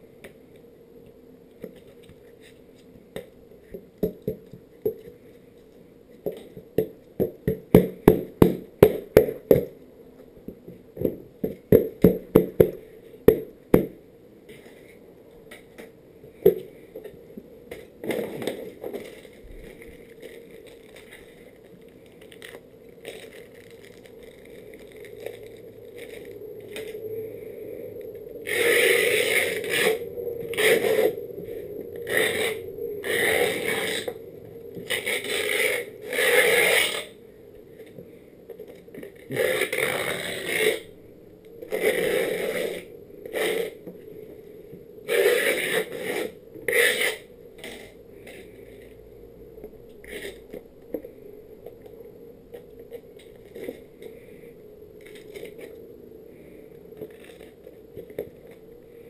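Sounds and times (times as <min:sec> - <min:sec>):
scraping across grip tape: 0:17.0 - 0:27.0, 0:28.3 - 0:34.2, 0:34.8 - 0:37.2, 0:38.7 - 0:41.0, 0:41.6 - 0:44.0, 0:45.0 - 0:49.0, 0:49.9 - 0:51.0, 0:55.0 - 0:55.8, 0:57.0 - 0:58.6.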